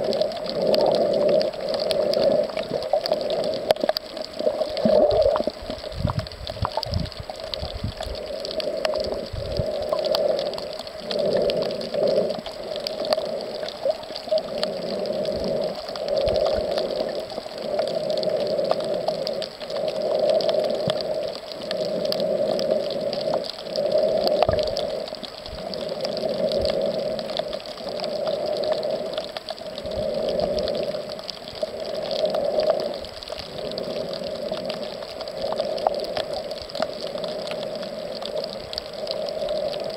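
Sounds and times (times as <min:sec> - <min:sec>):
muffled underwater water noise: 0:00.0 - 0:39.9.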